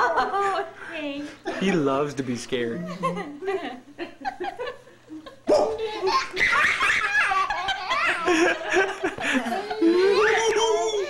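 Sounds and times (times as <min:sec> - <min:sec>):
woman laughing: 0:02.8 - 0:11.0
baby laughing: 0:05.5 - 0:11.0.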